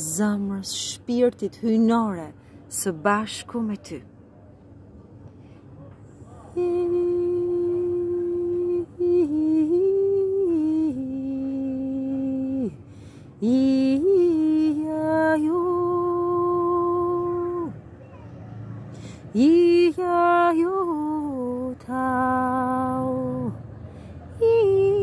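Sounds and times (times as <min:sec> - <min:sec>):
breaths: 0:02.4 - 0:02.7, 0:05.3 - 0:05.9, 0:12.8 - 0:13.4, 0:18.3 - 0:19.3, 0:23.7 - 0:24.3
woman humming a chant: 0:06.6 - 0:12.8.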